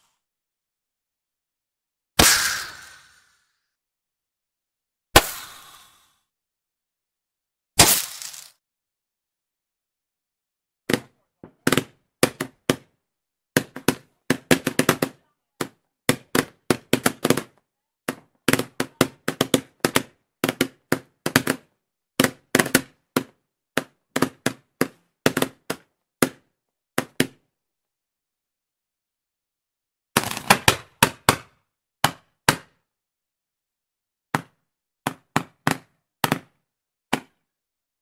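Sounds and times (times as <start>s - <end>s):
roman candles popping: 7.8s - 8.6s.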